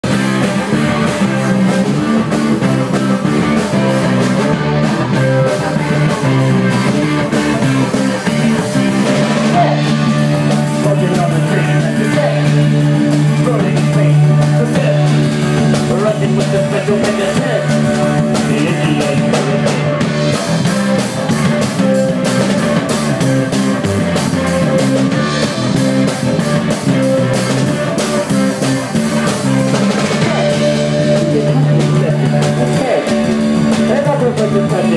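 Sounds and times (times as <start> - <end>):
electric guitar: 0.0 - 34.9
live rock band playing: 0.0 - 34.9
sustained bass line: 0.0 - 34.9.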